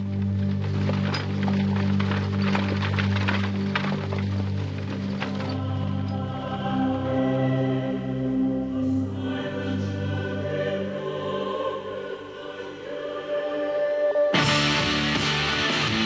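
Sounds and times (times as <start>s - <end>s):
choir singing soundtrack music: 5.2s - 16.0s.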